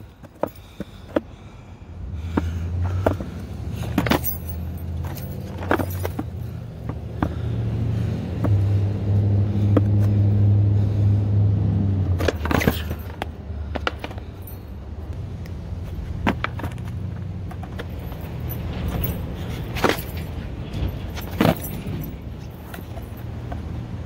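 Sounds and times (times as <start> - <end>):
low engine hum: 0.0 - 24.0
skateboard trucks rattling: 2.3 - 7.4, 15.9 - 23.8.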